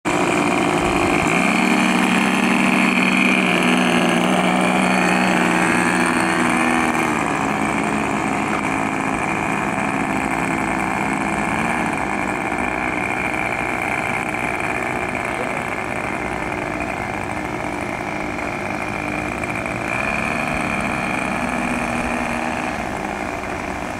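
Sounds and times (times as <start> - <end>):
model plane twin engines running: 0.0 - 23.9.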